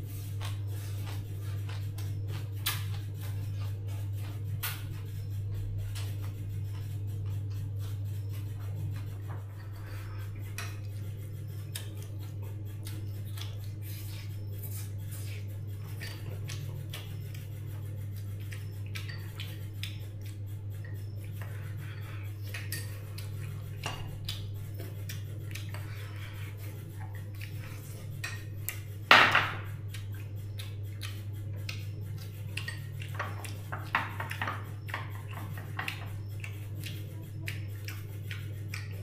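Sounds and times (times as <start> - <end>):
steady low hum: 0.0 - 39.0
dishes and utensils clinking: 23.7 - 24.2, 28.2 - 29.7, 32.6 - 36.1
tableware clattering: 29.1 - 29.7.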